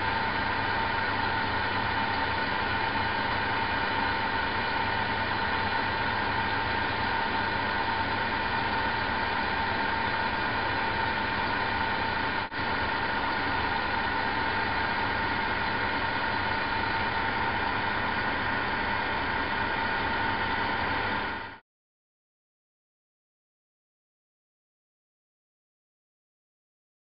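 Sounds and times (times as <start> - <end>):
vacuum pump humming and whining: 0.0 - 21.6.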